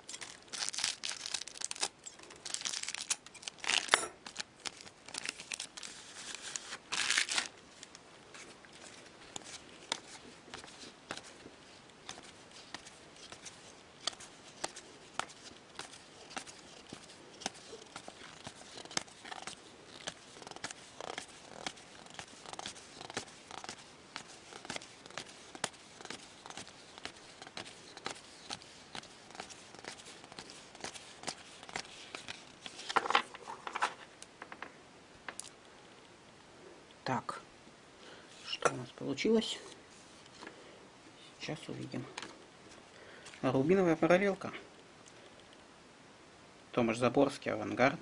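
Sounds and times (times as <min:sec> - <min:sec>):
cards rustling clatter: 0:00.0 - 0:34.7.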